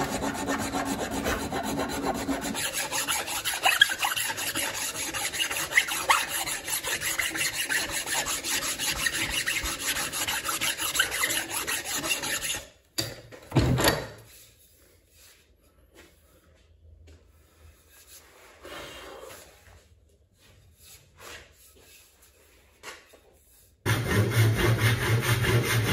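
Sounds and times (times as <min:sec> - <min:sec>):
rasp scraping wood: 0:00.0 - 0:12.7, 0:23.9 - 0:25.9.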